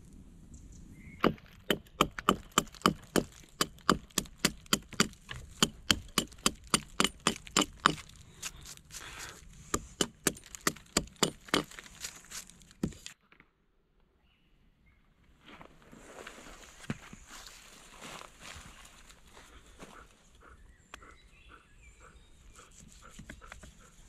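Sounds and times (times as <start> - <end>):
hatchet chopping wood: 1.2 - 13.2.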